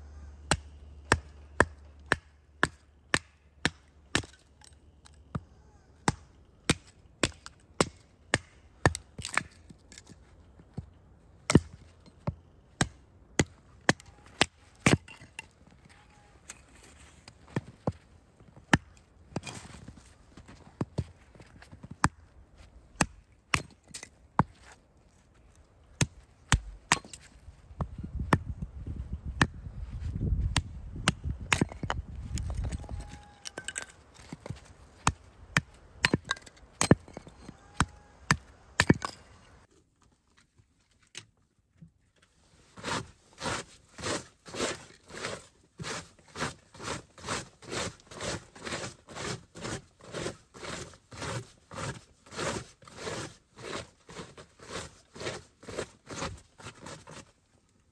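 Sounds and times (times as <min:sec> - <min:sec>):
hatchet chopping wood: 0:00.5 - 0:05.4, 0:06.0 - 0:09.7, 0:11.5 - 0:15.5, 0:23.0 - 0:24.5, 0:26.0 - 0:28.5, 0:30.4 - 0:39.2, 0:42.8 - 0:57.2
knife shaving wood: 0:42.8 - 0:57.3.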